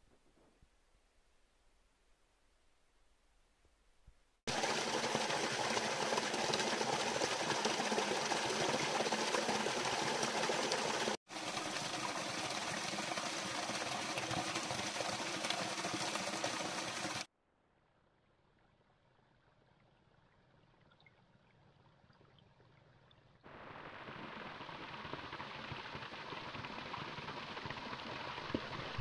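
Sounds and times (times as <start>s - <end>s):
stream flowing and gurgling: 4.5s - 17.3s, 23.4s - 29.0s.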